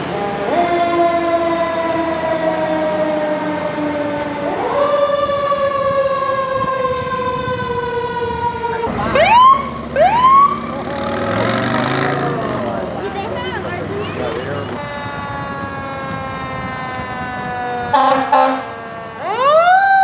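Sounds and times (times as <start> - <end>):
fire engine siren: 0.0 - 20.0
police siren whoops: 0.1 - 10.7, 14.3 - 20.0.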